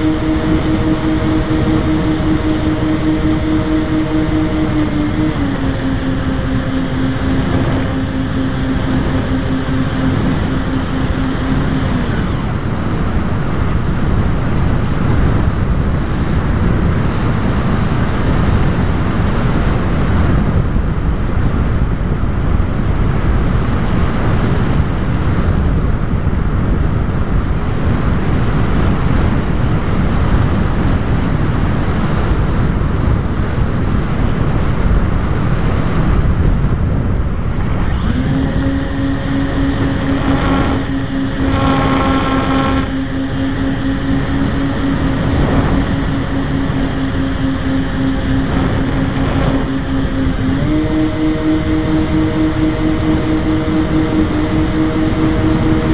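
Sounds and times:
model plane motor whine: 0.0 - 12.8, 37.6 - 55.9.

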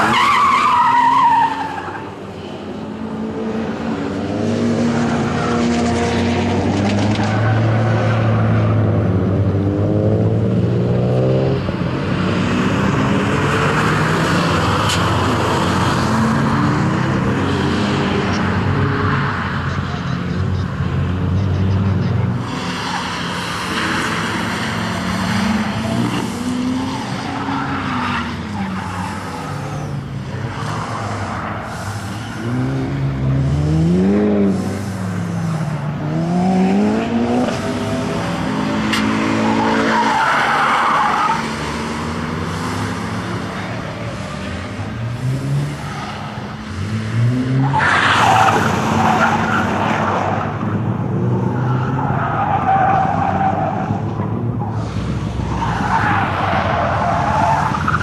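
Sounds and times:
car engine revving: 21.1 - 58.0.

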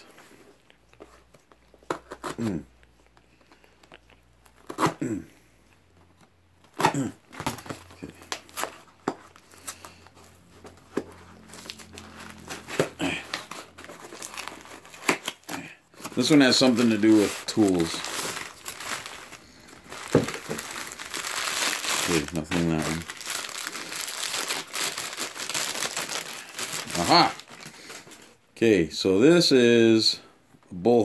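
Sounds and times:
crinkling: 0.0 - 28.4
cardboard and tape ripping: 1.0 - 2.7, 4.5 - 5.2, 6.6 - 10.0, 10.6 - 28.2.

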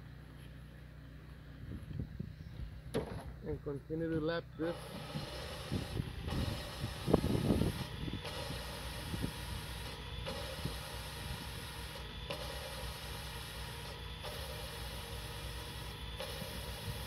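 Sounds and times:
valve grinding scraping and clicking: 4.7 - 17.0.

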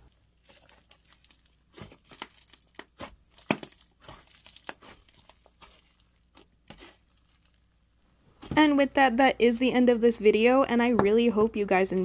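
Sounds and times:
slime crackling and popping: 0.0 - 7.9.

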